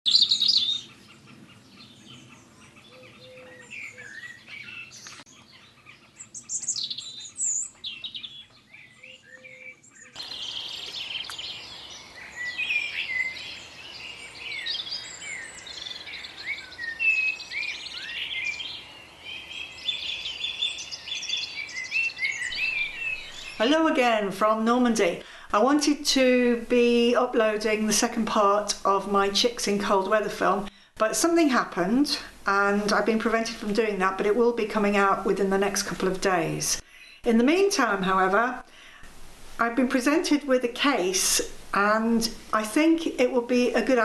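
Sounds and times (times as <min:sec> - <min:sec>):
small birds chirping: 0:00.1 - 0:31.0, 0:31.8 - 0:39.0
steady background hiss: 0:10.2 - 0:44.0.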